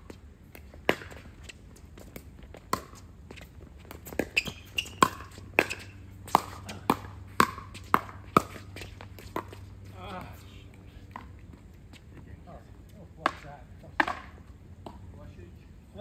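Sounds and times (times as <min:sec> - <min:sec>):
ball bouncing on court: 0:00.5 - 0:01.3, 0:02.1 - 0:09.6, 0:13.2 - 0:15.1.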